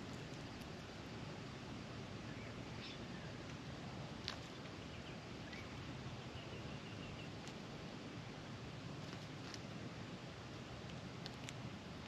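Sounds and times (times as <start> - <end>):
outdoor hiss: 0.0 - 12.0
distant bird twittering: 2.2 - 3.4, 4.5 - 7.4
bird pecking ticks: 10.8 - 11.7.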